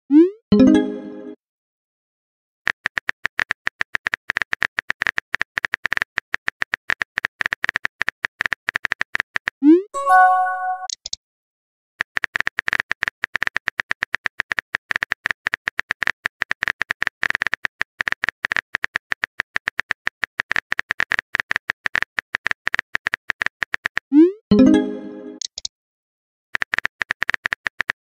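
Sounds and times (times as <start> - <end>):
short chime: 10.0 - 10.9
keyboard typing clicks: 24.6 - 25.7.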